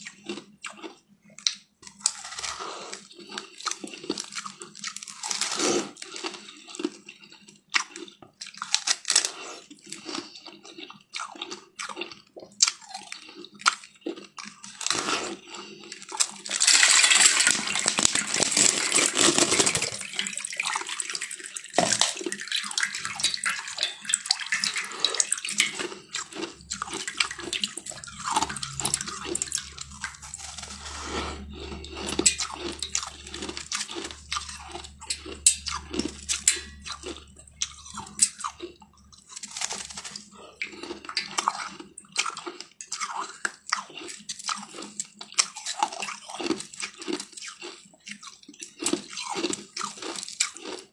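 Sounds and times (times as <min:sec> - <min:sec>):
ice being crunched: 0:16.1 - 0:20.6, 0:21.7 - 0:22.4, 0:25.5 - 0:31.4, 0:39.3 - 0:40.3.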